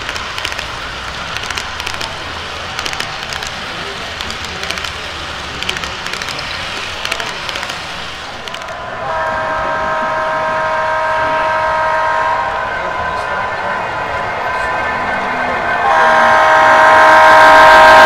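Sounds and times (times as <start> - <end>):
model train cars clicking over track: 0.0 - 9.3
model locomotive horn chord: 8.9 - 18.0.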